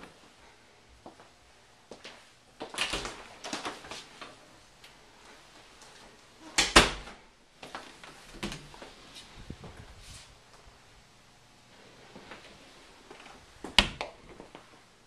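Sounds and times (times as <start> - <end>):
closet doors scraping and clattering: 7.8 - 10.3.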